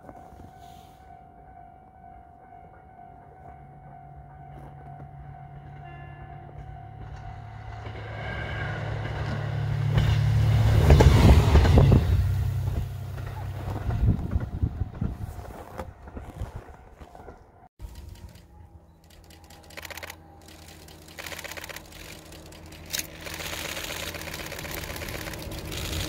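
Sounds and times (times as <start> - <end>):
level crossing warning bell: 0.0 - 8.0
diesel train engine hum: 0.0 - 26.0.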